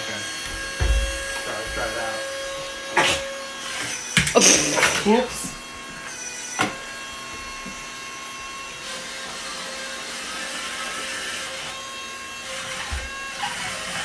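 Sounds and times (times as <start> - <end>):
toy car suction fan whine: 3.0 - 14.0.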